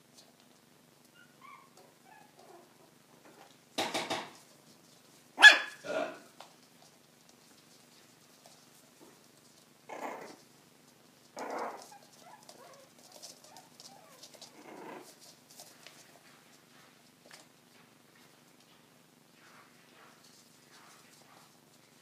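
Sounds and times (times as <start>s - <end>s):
puppy whines: 1.1s - 2.8s, 11.4s - 15.1s
puppy barks: 5.4s - 6.2s.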